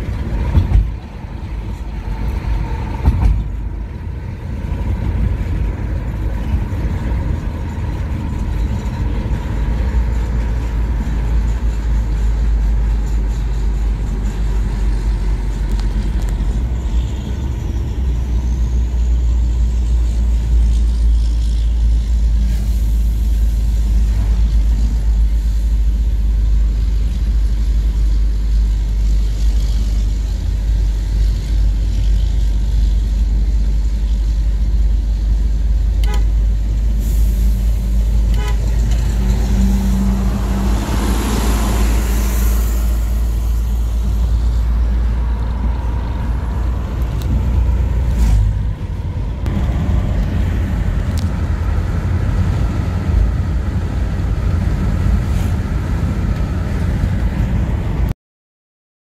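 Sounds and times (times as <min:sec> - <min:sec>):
car road noise rumble: 0:00.0 - 0:58.1
short horn toot: 0:36.0 - 0:36.4, 0:38.3 - 0:38.9
vehicle rushing past: 0:38.6 - 0:57.2.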